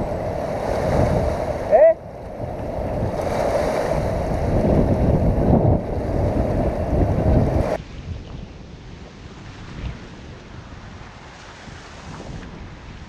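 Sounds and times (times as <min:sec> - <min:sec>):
river waves lapping on rocks: 0:00.0 - 0:07.8
wind buffeting microphone: 0:00.0 - 0:13.0.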